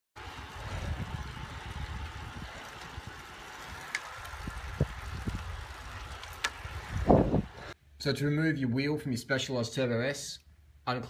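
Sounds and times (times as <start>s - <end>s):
wind buffeting microphone: 0.2s - 7.8s.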